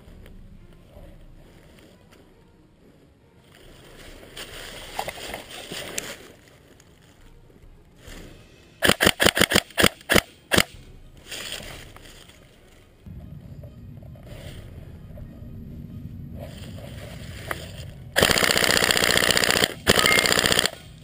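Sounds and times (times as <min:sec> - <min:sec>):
rustling in dry leaves: 0:00.0 - 0:08.6, 0:10.8 - 0:13.1, 0:16.4 - 0:19.4
airsoft gun rapid shots: 0:08.8 - 0:10.7, 0:18.2 - 0:21.0.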